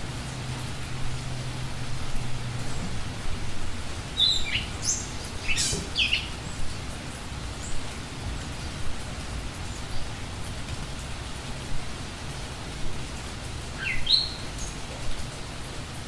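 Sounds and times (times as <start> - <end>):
rushing open air: 0.0 - 16.0
bird chirps: 4.2 - 6.3.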